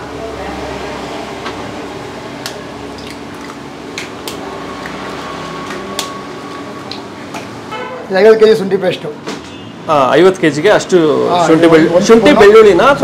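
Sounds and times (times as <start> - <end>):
soft wet plops: 2.4 - 6.2.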